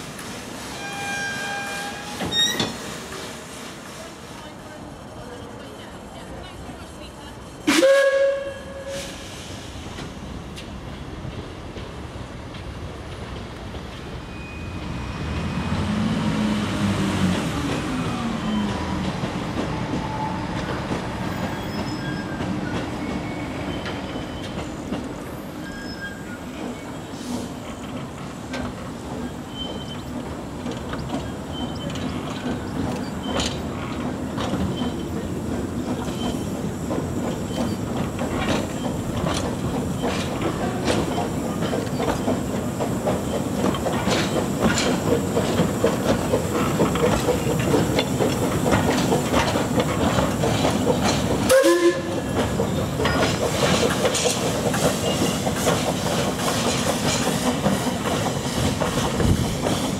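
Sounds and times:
train wheels clattering over rail joints: 18.7 - 59.9.

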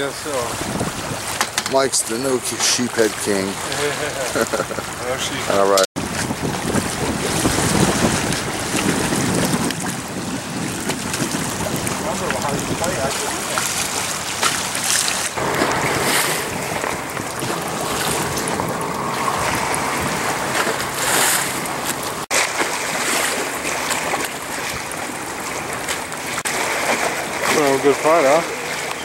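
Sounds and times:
wind buffeting microphone: 0.3 - 1.4, 4.8 - 22.3.

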